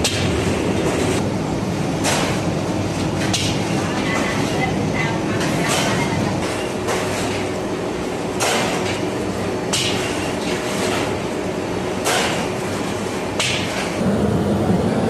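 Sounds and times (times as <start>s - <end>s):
dough sheeting machine humming: 0.0s - 15.0s.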